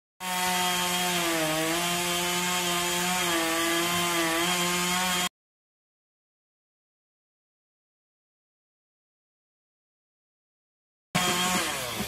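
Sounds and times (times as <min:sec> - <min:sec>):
chainsaw cutting wood: 0:00.2 - 0:05.3, 0:11.2 - 0:12.0.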